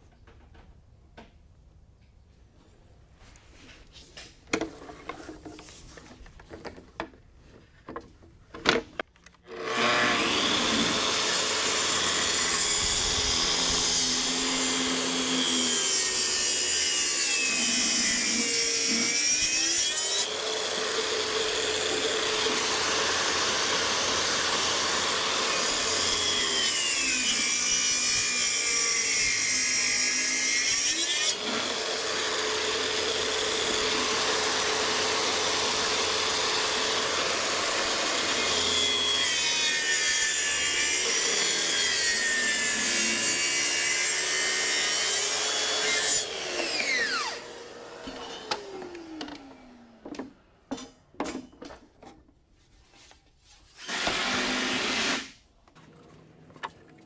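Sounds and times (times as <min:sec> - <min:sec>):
track saw cutting wood: 0:09.4 - 0:50.3, 0:53.8 - 0:55.4.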